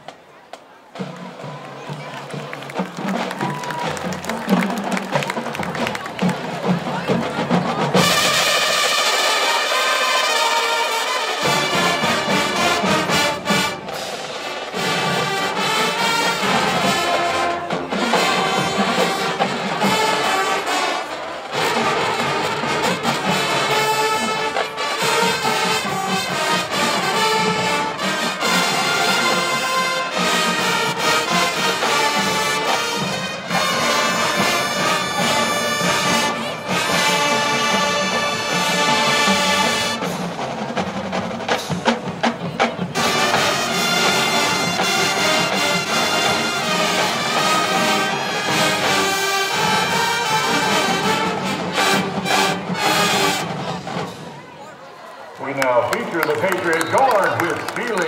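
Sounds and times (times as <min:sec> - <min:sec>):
marching band playing: 0:00.0 - 0:58.0.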